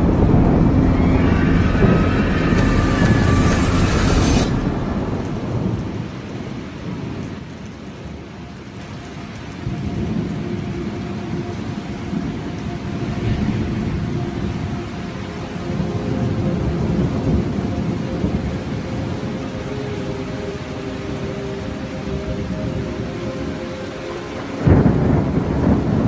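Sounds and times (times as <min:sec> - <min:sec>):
low rumble: 0:00.0 - 0:07.2
rain-like hiss: 0:00.0 - 0:26.0.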